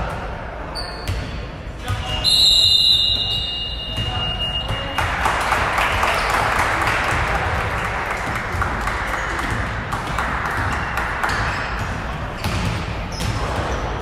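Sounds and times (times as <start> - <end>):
sneakers squeaking on court: 0.7 - 5.0, 10.6 - 14.0
basketball bouncing: 8.2 - 14.0.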